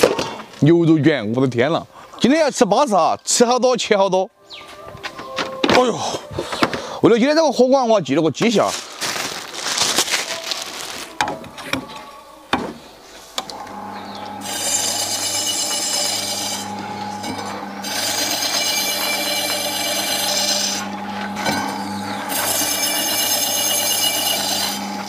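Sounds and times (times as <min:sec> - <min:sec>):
meat slicer motor humming: 0:13.4 - 0:25.0.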